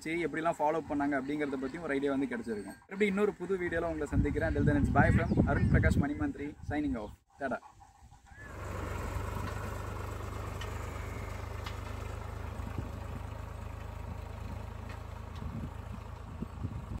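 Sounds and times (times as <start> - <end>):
tractor diesel engine running: 7.7 - 17.0.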